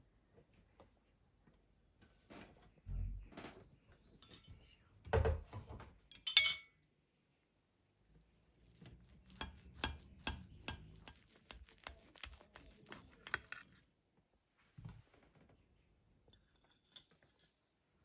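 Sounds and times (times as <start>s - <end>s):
metal scraping on ceramic plate: 9.2s - 13.8s.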